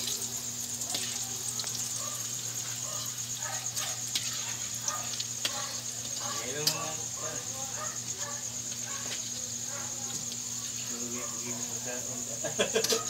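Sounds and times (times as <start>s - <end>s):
meat deep-frying in oil: 0.0s - 13.0s.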